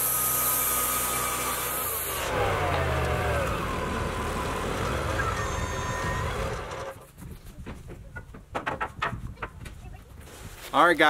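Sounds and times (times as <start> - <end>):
sawmill engine running: 0.0 - 7.1
clicks and knocks: 7.6 - 9.8.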